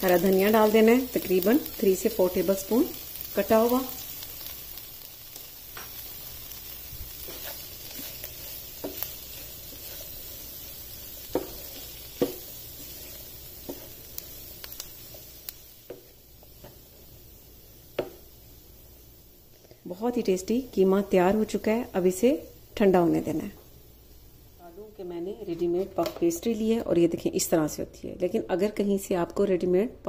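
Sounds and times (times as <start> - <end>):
faint sizzle: 0.0 - 30.0
wooden spoon scraping a pan: 6.7 - 17.0.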